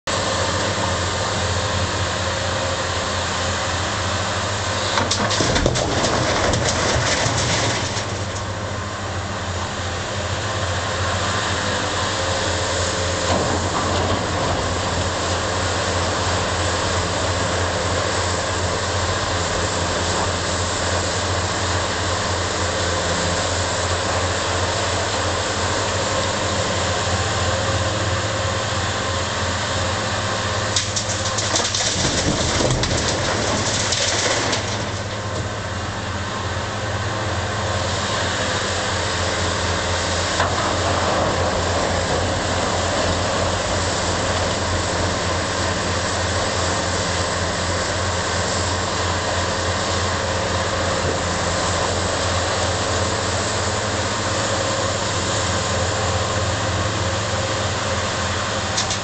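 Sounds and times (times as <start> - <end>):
diesel engines droning: 0.0 - 59.0
rock rattling and clattering: 4.9 - 8.5, 30.8 - 35.6.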